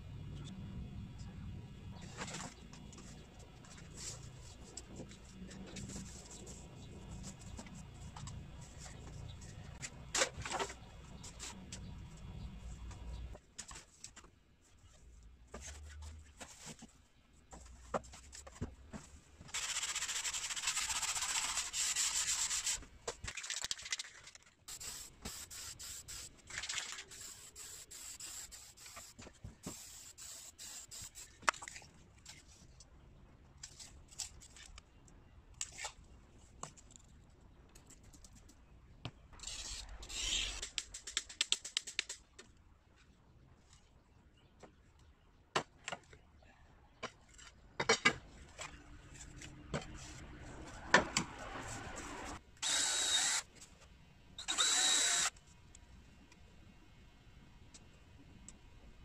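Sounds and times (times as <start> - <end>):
aerosol spray can hissing: 24.7 - 26.3, 27.2 - 29.1, 29.7 - 31.3.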